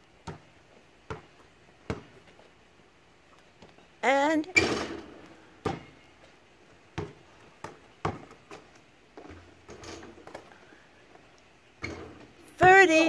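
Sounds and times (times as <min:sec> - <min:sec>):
basketball bouncing on blacktop: 0:00.1 - 0:02.5, 0:04.6 - 0:11.2, 0:11.8 - 0:13.0
basketball hitting backboard and rim: 0:00.2 - 0:00.5, 0:01.9 - 0:02.2, 0:04.6 - 0:06.0, 0:07.0 - 0:08.6, 0:11.8 - 0:12.7.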